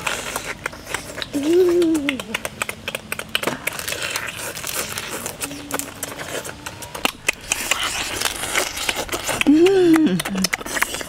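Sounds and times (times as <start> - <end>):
chewing: 0.0 - 11.0
crab shells cracking: 0.0 - 11.0.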